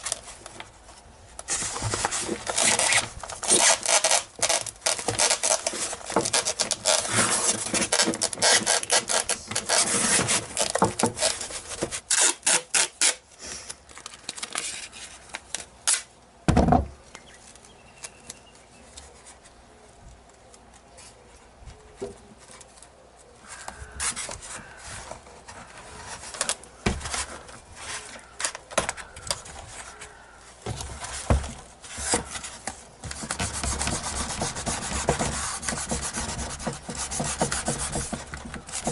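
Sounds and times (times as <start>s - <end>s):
hands rubbing foam model: 30.9s - 38.9s.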